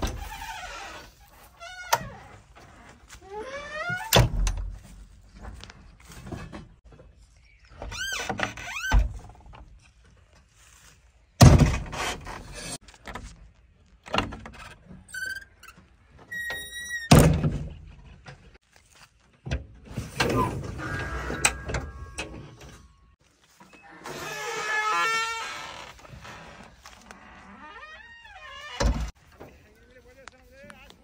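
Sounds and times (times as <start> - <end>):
hinges squeaking: 0.0 - 4.6, 14.2 - 17.2, 20.0 - 29.2.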